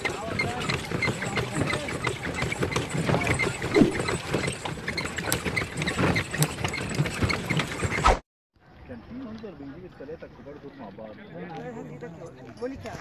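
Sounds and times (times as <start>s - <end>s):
carriage rattling and creaking: 0.0s - 8.0s
horse hoofbeats: 0.0s - 8.0s.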